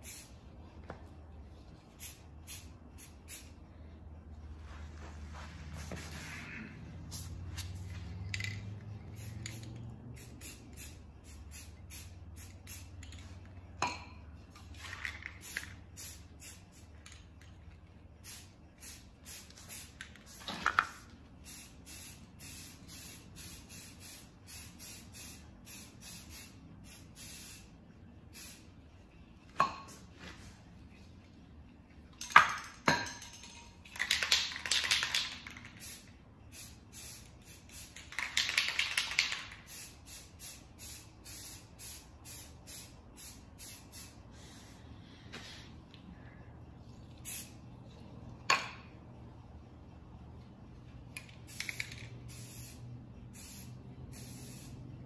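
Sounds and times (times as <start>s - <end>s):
aerosol spray paint hissing: 0.0s - 0.4s, 1.9s - 3.6s, 9.1s - 13.0s, 15.4s - 16.9s, 18.2s - 20.5s, 21.4s - 27.7s, 28.3s - 28.7s, 35.8s - 44.8s, 47.2s - 47.6s, 51.5s - 54.8s
metallic clinks of cans: 32.1s - 36.0s, 51.2s - 52.2s.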